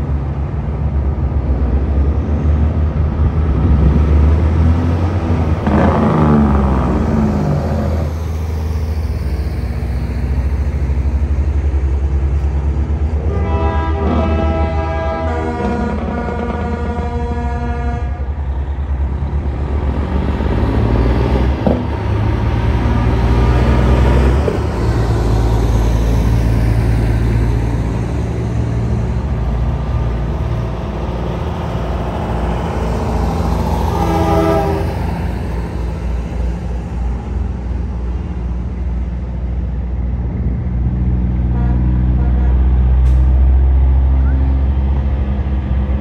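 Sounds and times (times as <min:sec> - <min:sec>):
diesel truck engines running: 0:00.0 - 0:46.0
truck air horn blast: 0:13.2 - 0:18.4, 0:33.7 - 0:35.2, 0:41.5 - 0:43.4.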